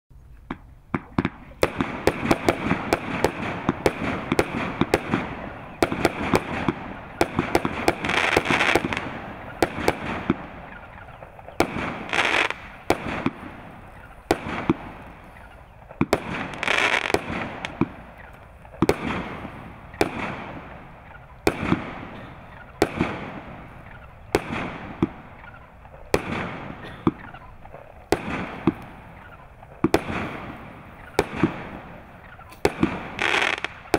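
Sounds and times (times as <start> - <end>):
crack echoes: 0.4 - 33.9
fireworks shots bursting: 0.4 - 33.9
fireworks hissing: 0.9 - 20.8, 26.0 - 33.9.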